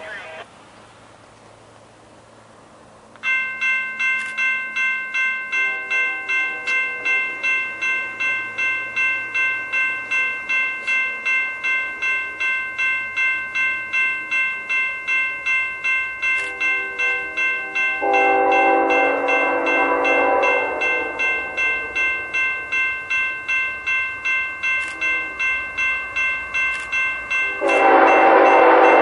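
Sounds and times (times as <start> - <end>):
railroad crossing bell ringing: 2.1 - 29.0
faint train horn: 16.5 - 21.3, 27.5 - 29.0.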